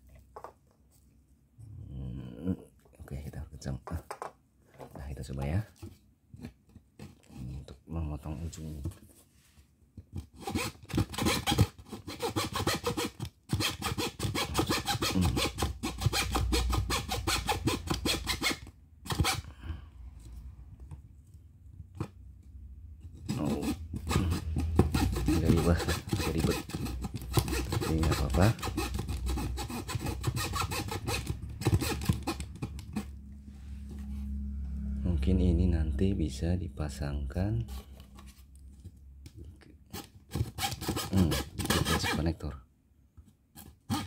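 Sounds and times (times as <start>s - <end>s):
fretsaw rasping through board: 10.2s - 19.4s, 23.1s - 33.2s, 40.0s - 42.2s.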